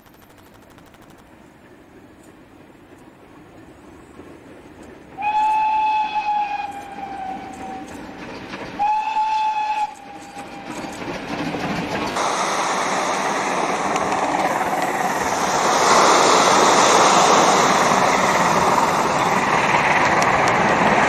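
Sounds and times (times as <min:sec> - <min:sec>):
train running noise: 0:00.0 - 0:21.0
steam locomotive whistle: 0:05.2 - 0:08.0, 0:08.8 - 0:11.1.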